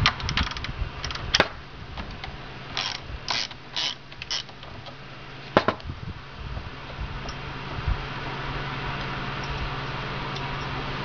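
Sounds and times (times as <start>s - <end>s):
sharp metal click: 0.0s - 5.0s
ratchet wrench clicking: 2.8s - 4.7s.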